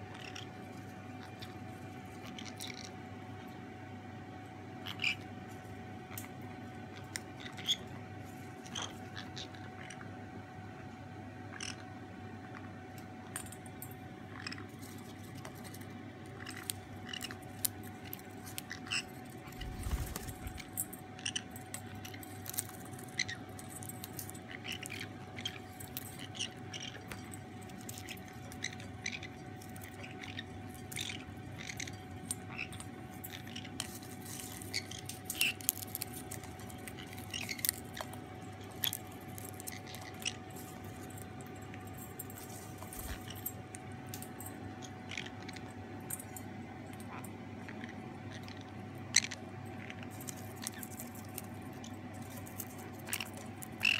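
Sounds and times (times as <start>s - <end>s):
beak crunching popcorn: 13.3s - 53.9s.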